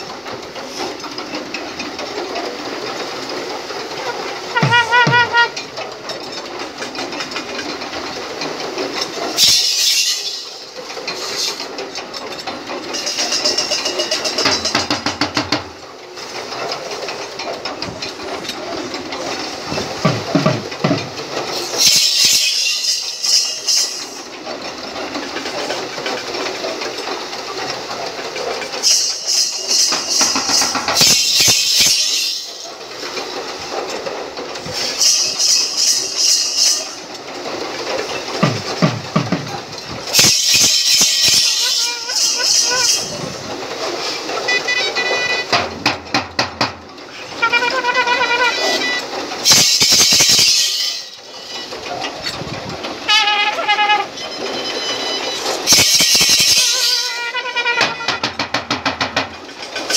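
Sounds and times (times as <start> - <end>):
wooden sled rattling: 0.0 - 59.9
hooves pounding: 37.4 - 40.2.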